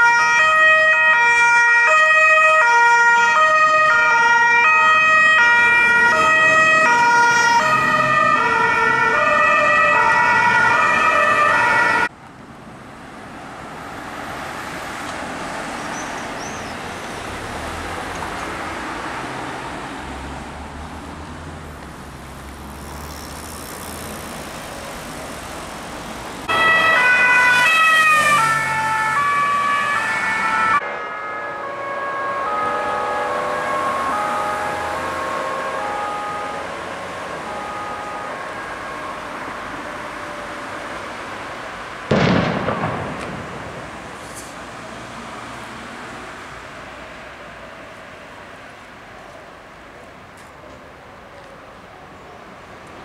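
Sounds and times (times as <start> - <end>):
two-tone sirens: 0.0 - 12.2, 26.4 - 52.2
road traffic noise: 0.0 - 53.0
vehicle passing: 0.4 - 48.7.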